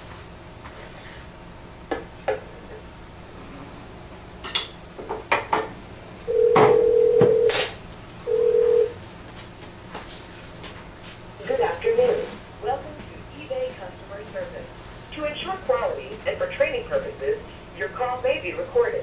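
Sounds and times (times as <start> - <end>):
telephone tones: 6.3 - 7.6, 8.2 - 9.0.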